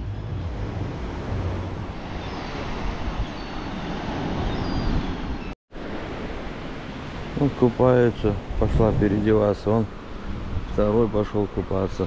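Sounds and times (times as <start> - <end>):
sea surf washing: 0.0 - 12.0
wind buffeting microphone: 7.3 - 12.0.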